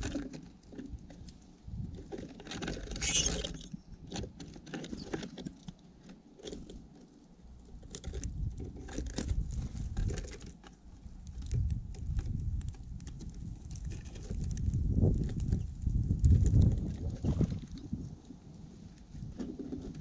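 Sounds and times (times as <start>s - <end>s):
beaks pecking on wooden feeder: 2.6s - 3.7s.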